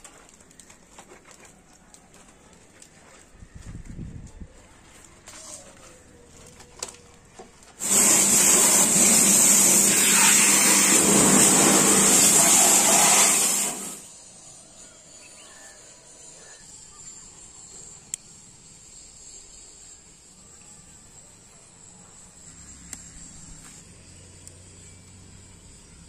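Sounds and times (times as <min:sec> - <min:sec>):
pressure washer motor hum: 0:07.8 - 0:14.1
pressure washer spraying water: 0:07.8 - 0:14.1.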